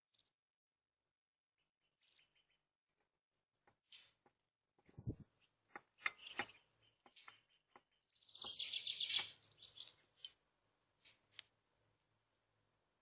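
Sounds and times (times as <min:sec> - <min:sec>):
songbirds chirping: 0:00.0 - 0:13.0.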